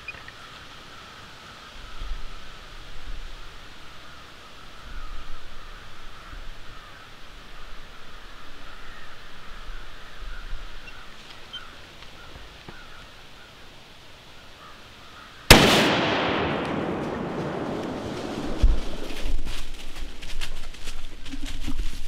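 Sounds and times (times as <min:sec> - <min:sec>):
gunshot: 0:15.5 - 0:19.1
gunshot echo through woods: 0:15.5 - 0:19.8.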